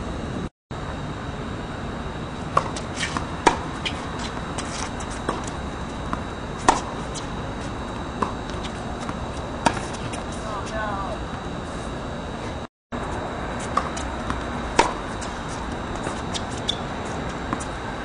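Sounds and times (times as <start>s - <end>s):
tennis ball struck by racket: 2.5s - 4.0s, 6.6s - 7.1s, 9.0s - 10.2s, 13.7s - 15.4s
tennis ball bouncing on court: 2.5s - 7.3s, 8.2s - 10.3s, 13.6s - 17.7s.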